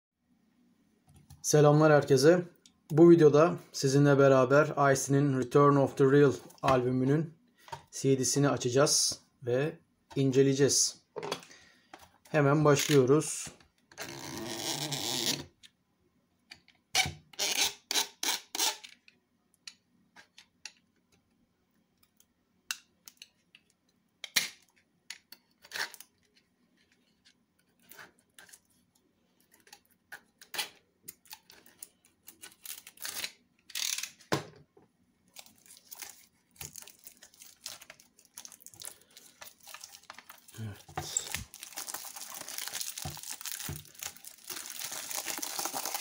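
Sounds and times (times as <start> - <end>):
knife scraping plastic film: 25.5 - 26.2, 29.5 - 34.2
plastic film crinkling: 35.3 - 46.0.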